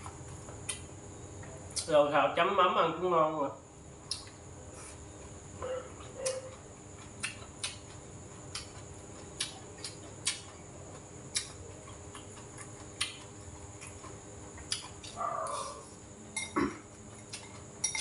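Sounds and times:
person chewing with mouth clicks: 0.6 - 0.9, 5.6 - 15.8.

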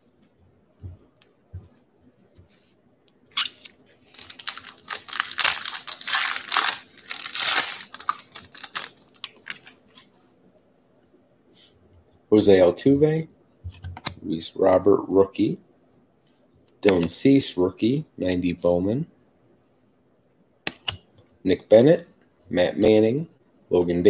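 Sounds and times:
foil wrapper crinkling: 3.4 - 9.9.

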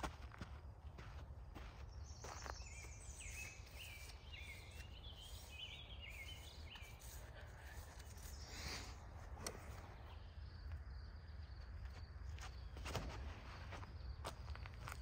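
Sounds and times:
songbird chirping and warbling: 1.6 - 15.0.

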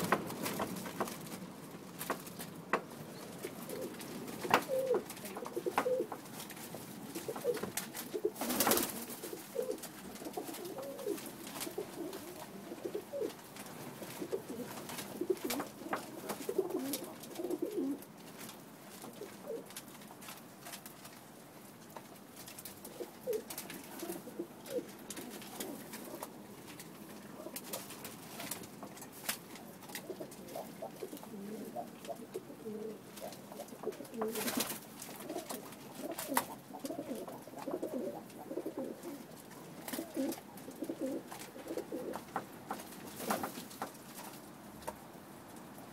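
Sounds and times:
pigeons cooing: 0.0 - 18.2, 18.9 - 19.8, 22.7 - 43.6.

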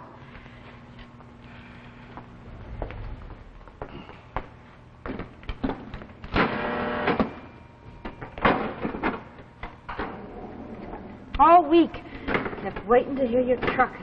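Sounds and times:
loud buzzing ring: 6.3 - 7.8.

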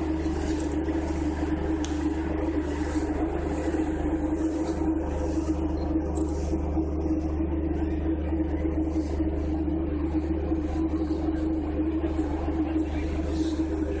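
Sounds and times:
ship engines droning: 0.0 - 14.0
steady mid-pitched tone: 0.0 - 14.0.

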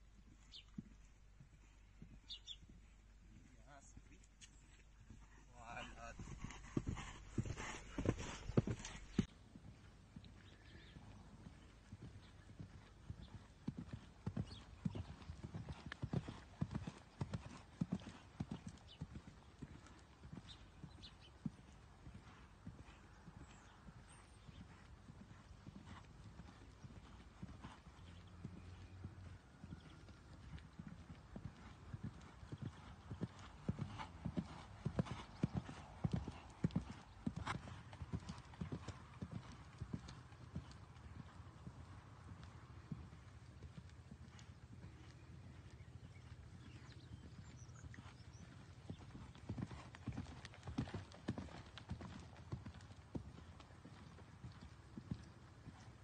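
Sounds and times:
horse hooves trotting on sand: 0.2 - 56.0.

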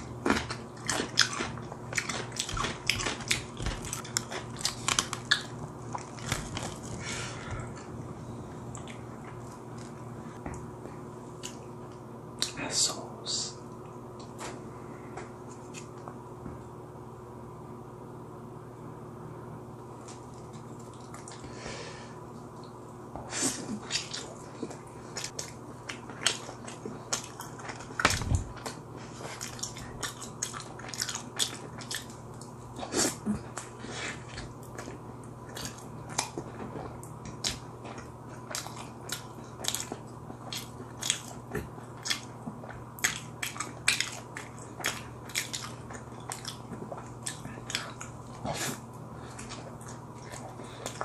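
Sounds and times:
chewing and biting pizza: 0.0 - 8.0, 23.5 - 51.0
low steady hum: 0.0 - 51.0.

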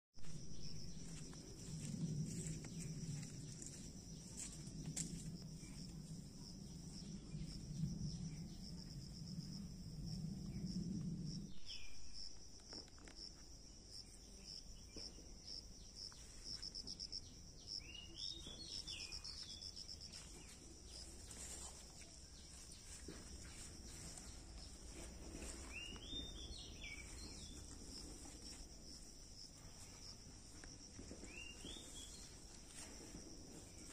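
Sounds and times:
low rumble: 0.2 - 12.5.

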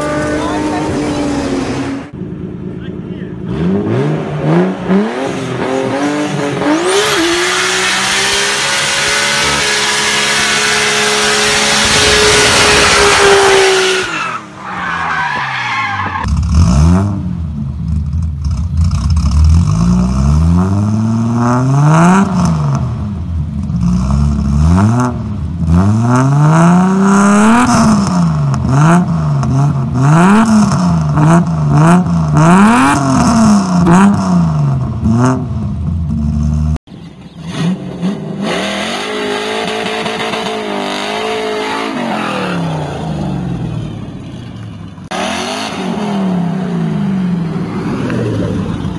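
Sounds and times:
car engine free-revving: 3.4 - 14.6, 45.0 - 48.9.

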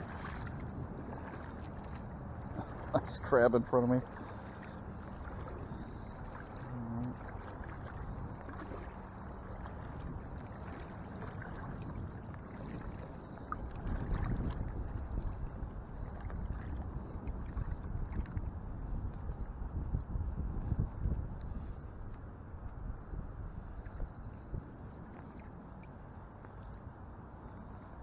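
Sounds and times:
water sloshing around legs: 0.0 - 19.6.

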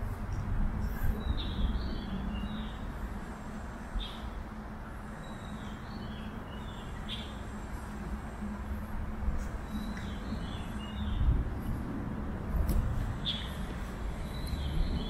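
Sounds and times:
low rumble of traffic: 0.0 - 15.0.

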